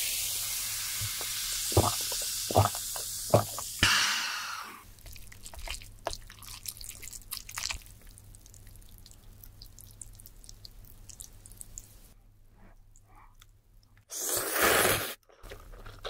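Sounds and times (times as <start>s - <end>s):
sticky noodles being stirred: 1.1s - 3.7s, 4.9s - 11.9s.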